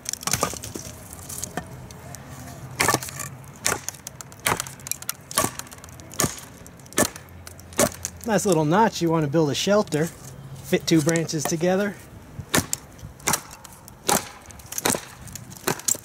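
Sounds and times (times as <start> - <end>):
blade chopping wood: 0.0 - 1.7, 2.8 - 8.7, 12.5 - 16.0.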